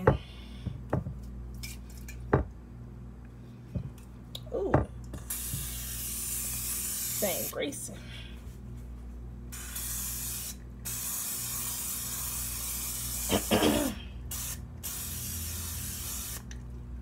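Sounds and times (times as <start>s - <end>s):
aerosol spray can hissing: 5.3s - 7.5s, 9.5s - 13.6s, 14.3s - 16.5s.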